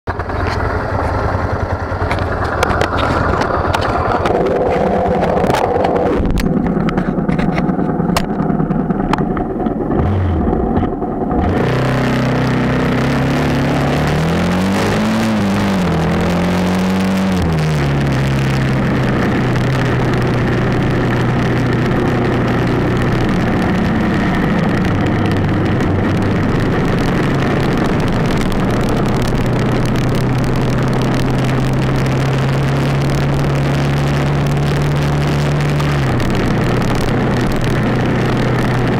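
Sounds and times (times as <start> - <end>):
motorcycle engine: 0.1 - 38.9
wind rushing over camera: 2.2 - 38.9.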